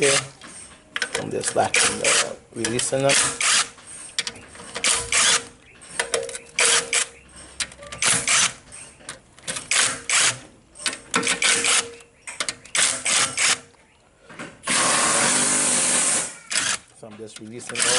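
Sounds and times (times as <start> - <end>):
impact driver hammering bursts: 1.6 - 3.8, 4.7 - 7.2, 8.0 - 8.6, 9.5 - 13.6, 14.6 - 16.9, 17.7 - 17.9.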